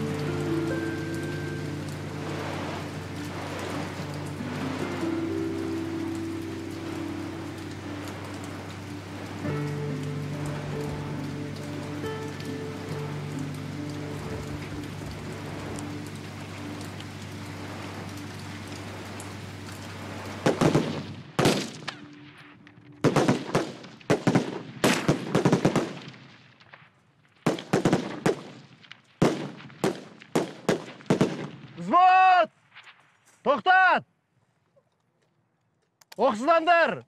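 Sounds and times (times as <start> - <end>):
steady rain-like hiss: 0.0 - 37.0
rifle shots with echo: 20.4 - 22.3, 23.0 - 31.8.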